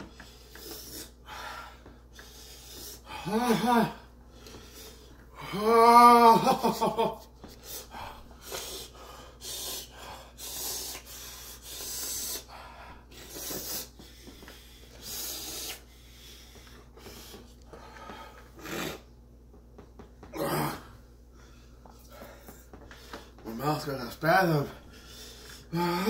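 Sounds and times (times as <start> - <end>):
man breathing heavily through mouth: 0.0 - 5.5, 7.6 - 19.1.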